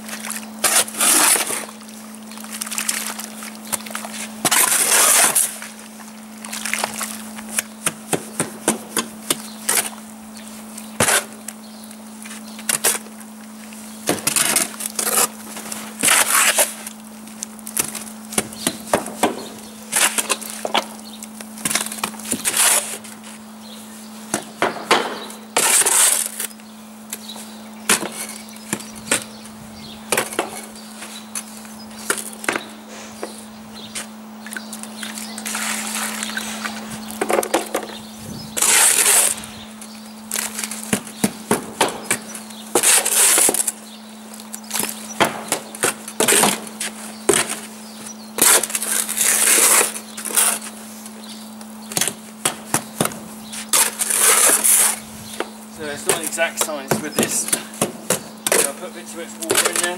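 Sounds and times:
spade scraping mortar: 0.6s - 1.7s, 4.1s - 5.6s, 14.2s - 16.8s, 19.9s - 20.8s, 22.2s - 23.2s, 25.2s - 26.5s, 38.6s - 39.5s, 42.7s - 43.7s, 48.4s - 50.7s, 53.5s - 55.0s.

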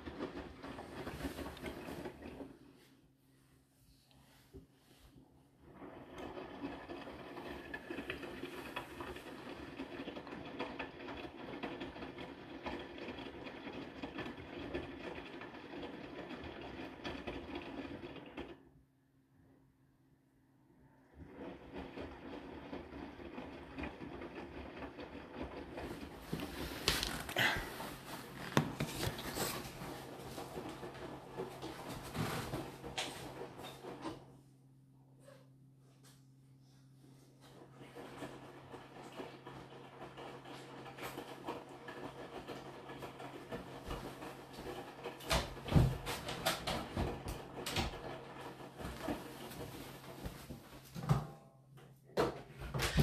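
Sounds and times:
washing machine motor hum: 0.0s - 53.0s
wet laundry and water swishing: 25.7s - 33.6s, 48.6s - 51.0s.

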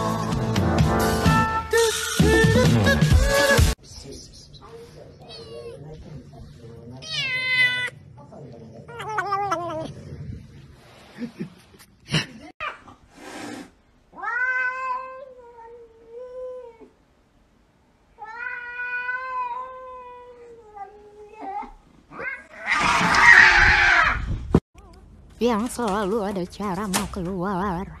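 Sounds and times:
cat yowling: 7.0s - 8.0s, 8.8s - 10.0s, 14.2s - 16.9s, 18.2s - 24.2s.

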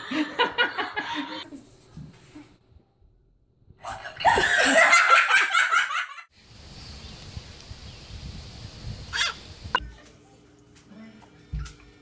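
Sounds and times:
laughter: 0.0s - 1.5s, 4.0s - 6.3s.

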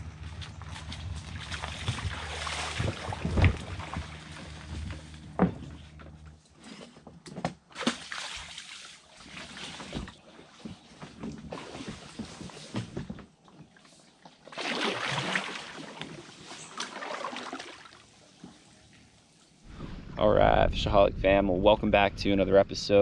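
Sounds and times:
low steady hum: 0.0s - 23.0s
water sloshing: 0.1s - 7.0s, 7.6s - 19.4s
kayak hull scraping over sand: 0.7s - 7.0s.

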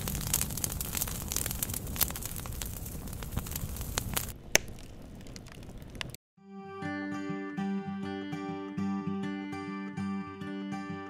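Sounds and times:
firewood crackling: 0.0s - 6.2s
loud wood crack: 0.0s - 6.2s.

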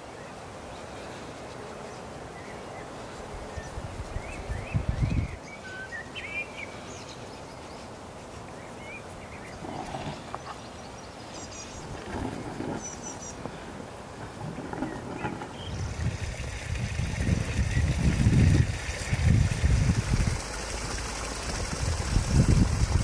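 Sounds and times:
steady background hiss: 0.0s - 21.9s
small birds chirping: 0.1s - 13.7s, 14.6s - 16.6s.

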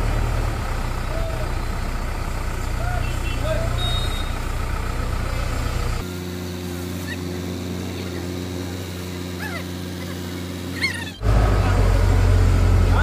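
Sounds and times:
backhoe diesel engine running: 0.0s - 13.0s
short high calls: 2.8s - 4.5s.

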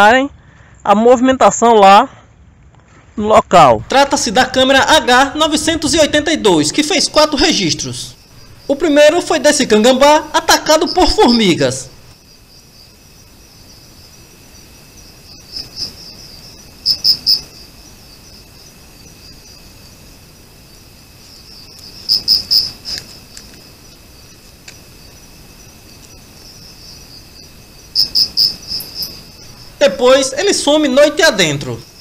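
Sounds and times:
close cricket chirping: 3.3s - 32.0s
crickets trilling: 3.6s - 32.0s.

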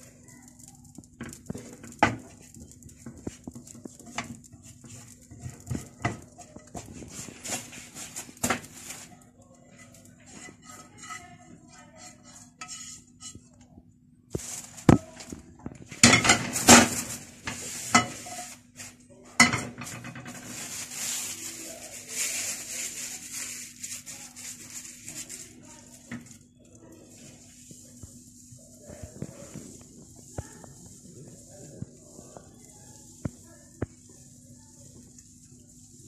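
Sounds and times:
paper towel wiping hot pan: 0.0s - 13.3s, 14.4s - 36.0s
frying pan knocking on stove grates: 1.1s - 9.0s, 10.2s - 13.4s, 15.9s - 18.6s, 19.4s - 20.6s.

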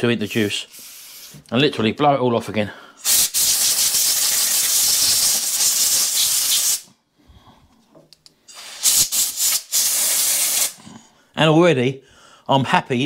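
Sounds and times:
compressed air blow gun hissing: 0.7s - 1.4s, 3.0s - 6.9s, 8.5s - 10.8s.

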